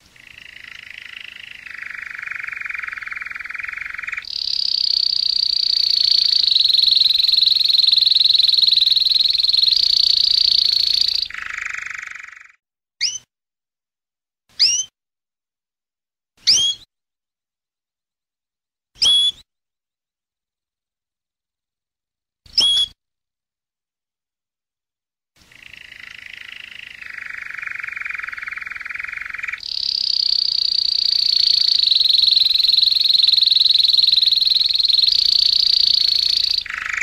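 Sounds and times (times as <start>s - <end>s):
canary trilling: 0.1s - 13.2s, 25.5s - 37.0s.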